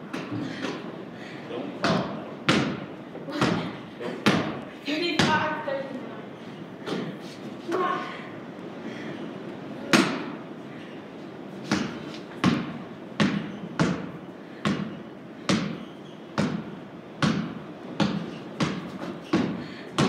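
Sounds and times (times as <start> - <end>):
basketball dribbling on wooden floor: 11.7 - 14.9, 15.5 - 15.8, 16.4 - 20.0.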